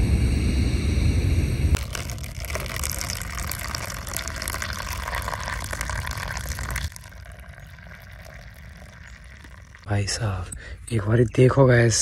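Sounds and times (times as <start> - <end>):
coffee pouring into a cup: 1.8 - 9.9.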